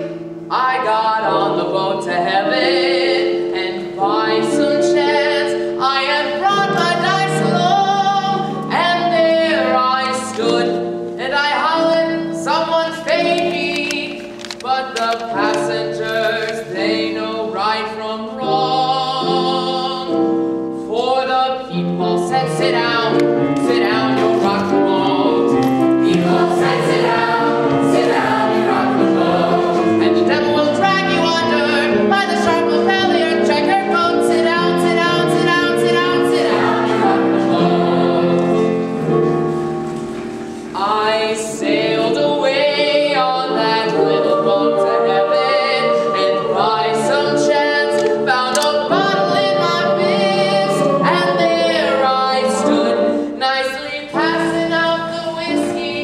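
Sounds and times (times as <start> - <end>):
musical accompaniment: 0.0 - 56.0
ensemble singing show tune: 21.0 - 39.2, 40.6 - 56.0.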